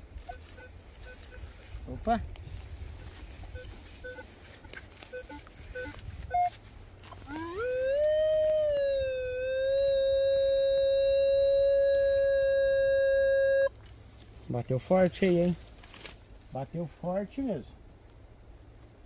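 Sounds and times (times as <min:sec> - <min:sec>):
metal detector short beeps: 0:00.3 - 0:01.5, 0:03.5 - 0:04.2, 0:05.1 - 0:06.5
metal detector rising tone: 0:07.2 - 0:13.7.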